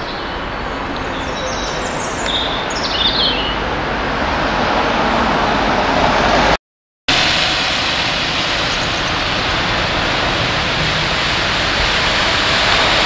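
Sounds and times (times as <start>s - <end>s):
steam locomotive hissing: 7.2s - 13.0s.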